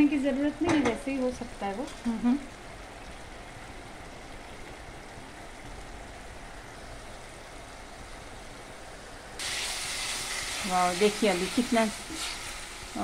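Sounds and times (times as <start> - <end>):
masala sizzling and bubbling: 0.0 - 13.0.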